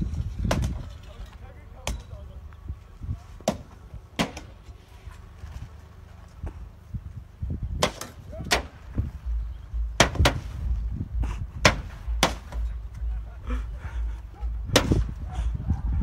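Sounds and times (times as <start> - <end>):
low steady rumble: 0.0 - 16.0
poles banging on car metal body: 10.0 - 10.5.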